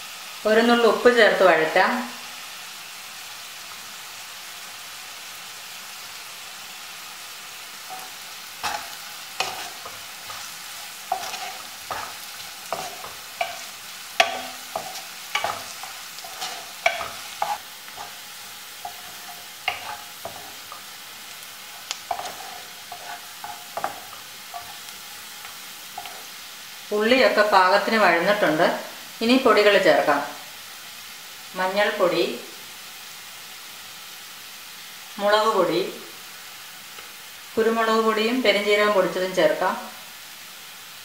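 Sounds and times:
onions sizzling in oil: 0.0 - 41.0
wooden spatula scraping pan: 7.8 - 26.4.

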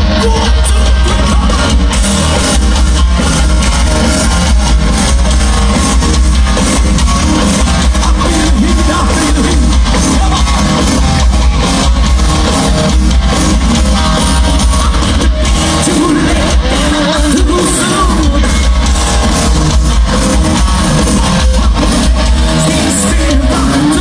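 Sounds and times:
person singing lead vocal: 0.0 - 2.6, 7.8 - 11.1, 13.7 - 19.1, 20.2 - 24.0
heavy boomy bass: 0.0 - 24.0
live metal band playing: 0.0 - 24.0.

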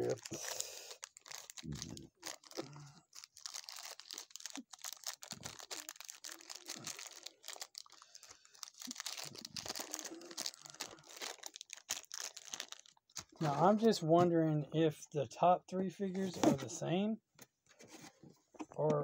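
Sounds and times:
plastic bags crinkling: 0.0 - 13.8.

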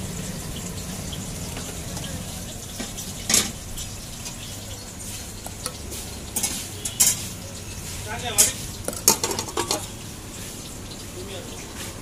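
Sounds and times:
steel spoon clinking on containers: 5.3 - 7.6, 8.3 - 9.9.

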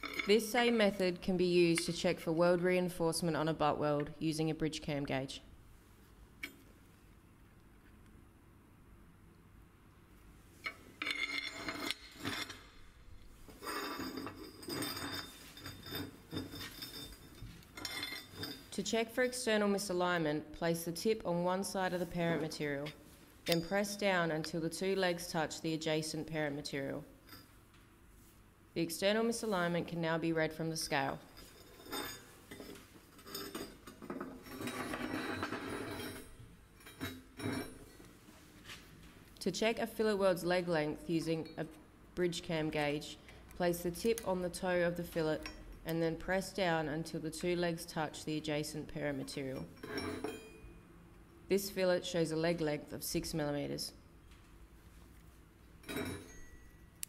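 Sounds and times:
metal pieces clinking and scraping: 0.0 - 0.4, 10.6 - 12.9, 13.5 - 18.7, 31.3 - 38.0
metal clinks: 0.0 - 0.5, 10.6 - 12.8, 13.6 - 19.3, 49.6 - 50.9, 55.8 - 57.0
scraping handling noise: 10.6 - 18.8.

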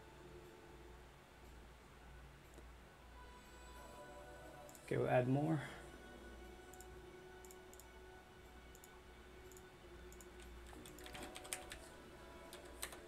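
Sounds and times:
low steady hum: 0.0 - 13.0
keyboard typing and clicking: 8.7 - 8.9, 9.5 - 11.9, 12.5 - 13.0.

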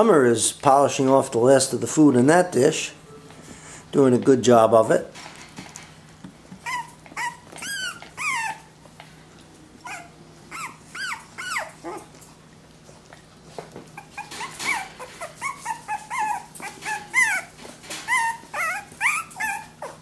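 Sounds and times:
puppies whimpering and yelping: 6.6 - 9.0, 9.7 - 12.4, 13.9 - 20.0.

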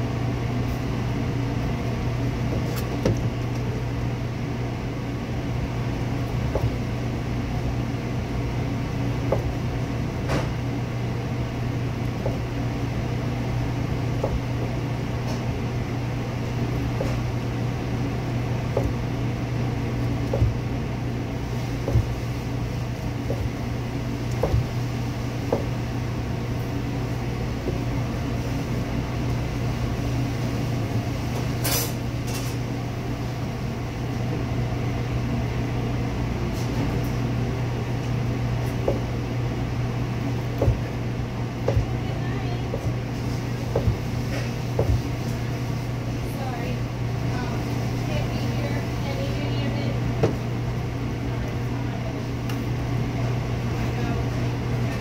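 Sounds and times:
low hum of kitchen machinery: 0.0 - 55.0
knife knocking on cutting board: 24.4 - 24.7.

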